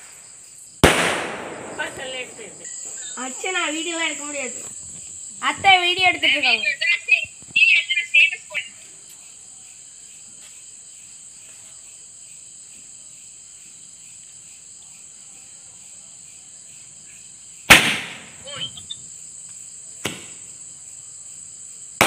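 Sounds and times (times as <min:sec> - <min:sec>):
sharp crack: 0:00.0 - 0:02.7, 0:17.7 - 0:18.6, 0:20.0 - 0:20.4
firecracker bang: 0:00.0 - 0:04.1, 0:17.7 - 0:18.7, 0:20.0 - 0:20.5
crickets chirping: 0:00.0 - 0:22.0.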